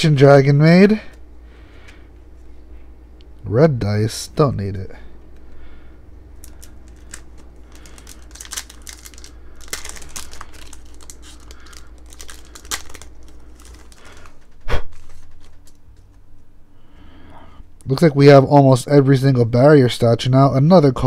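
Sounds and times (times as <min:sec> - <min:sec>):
foil wrapper crinkling: 0:06.4 - 0:16.2.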